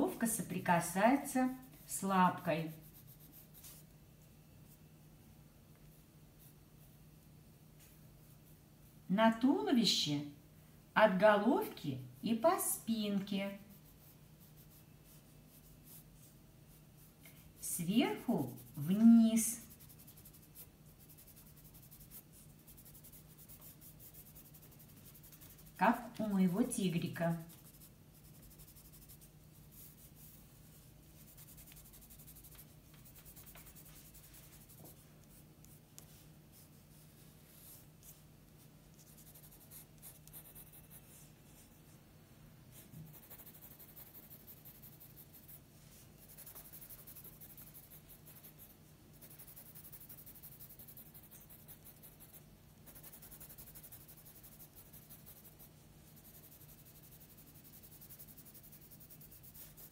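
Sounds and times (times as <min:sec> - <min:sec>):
pencil scratching on paper: 0:00.8 - 0:03.8, 0:13.6 - 0:16.3, 0:17.7 - 0:38.2, 0:38.9 - 0:41.7, 0:43.0 - 0:45.6, 0:46.2 - 0:59.9.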